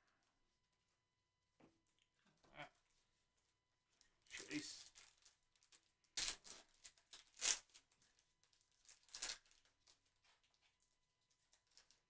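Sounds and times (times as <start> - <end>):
foil wrapper crinkling and tearing: 4.3 - 12.0.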